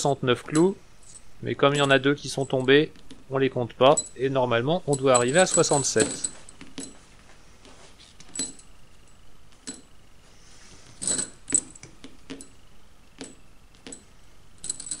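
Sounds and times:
steel nails clinking: 0:04.8 - 0:07.0.

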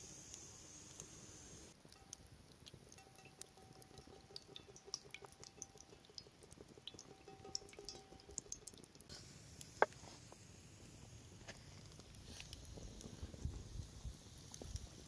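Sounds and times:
wood fire crackling: 0:00.0 - 0:15.0
oil trickling into a frying pan: 0:01.8 - 0:10.0.

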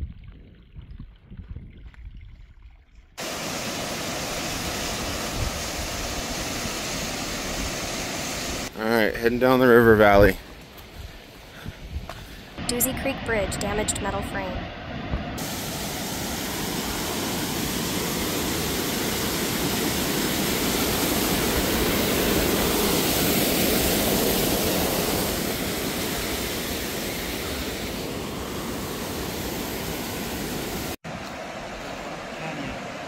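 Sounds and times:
creek water rushing: 0:03.2 - 0:11.5, 0:14.8 - 0:33.0.

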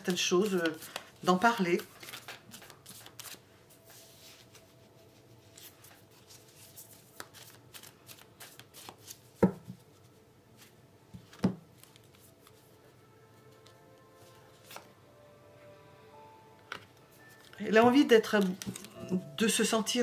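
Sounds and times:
cards being shuffled: 0:00.0 - 0:10.0, 0:10.6 - 0:12.6, 0:13.6 - 0:14.9, 0:17.4 - 0:19.2.

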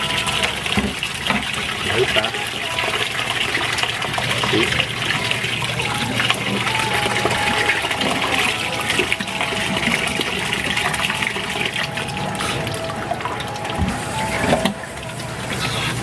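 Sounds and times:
tap water pouring into a bowl: 0:00.0 - 0:16.0.

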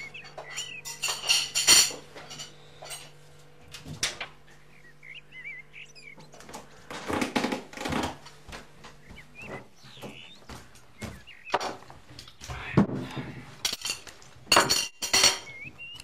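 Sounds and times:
small bird chirping: 0:00.0 - 0:01.3, 0:04.4 - 0:06.9, 0:08.9 - 0:12.8, 0:15.2 - 0:16.0
plates and cutlery clinking: 0:00.0 - 0:03.2, 0:13.6 - 0:15.7.

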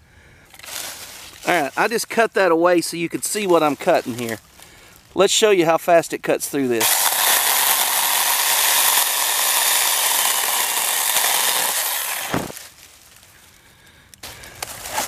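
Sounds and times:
chainsaw cutting wood: 0:06.8 - 0:12.7
thump: 0:12.3 - 0:12.6.

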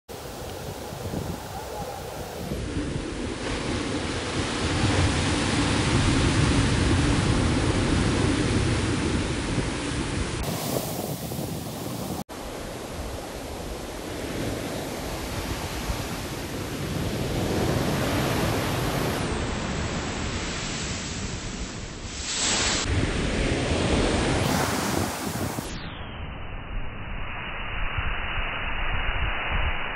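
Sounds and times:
waves crashing on beach: 0:00.1 - 0:25.7.

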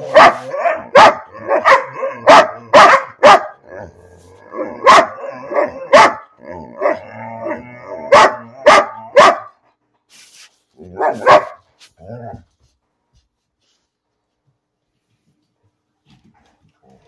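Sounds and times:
large dog barking: 0:00.0 - 0:09.7, 0:10.8 - 0:12.4
dog grumbling: 0:06.4 - 0:08.6.

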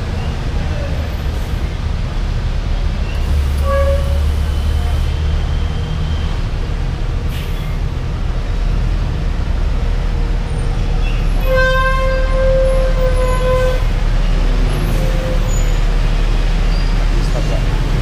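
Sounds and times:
low rumble of engines: 0:00.0 - 0:18.0
vehicle horn blaring: 0:03.6 - 0:04.3, 0:11.4 - 0:13.9.

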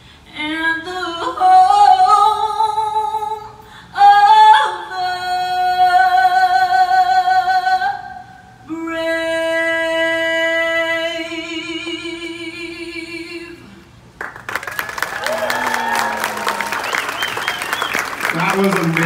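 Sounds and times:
woman singing with vibrato: 0:00.3 - 0:13.9.

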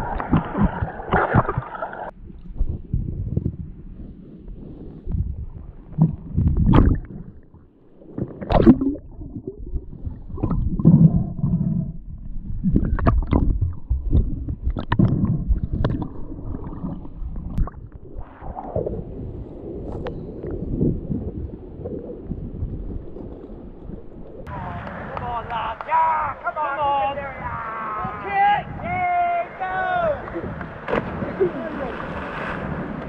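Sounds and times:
underwater gurgling and rumbling: 0:00.0 - 0:24.5.

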